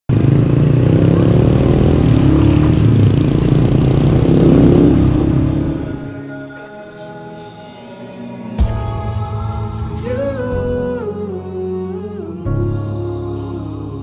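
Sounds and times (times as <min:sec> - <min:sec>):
motorcycle engine accelerating: 0:00.1 - 0:06.2
wind and road noise: 0:00.1 - 0:06.2
soft music: 0:04.2 - 0:14.0.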